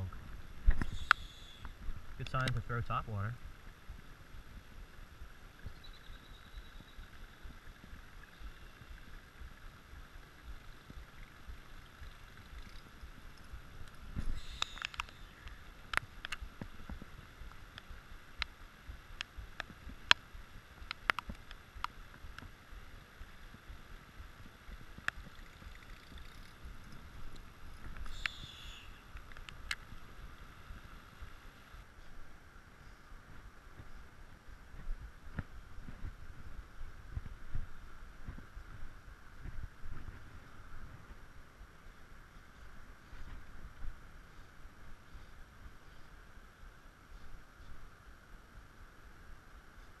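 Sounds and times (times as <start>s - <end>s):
sharp ticks: 0.7s - 3.0s, 5.6s - 22.5s, 24.7s - 30.0s.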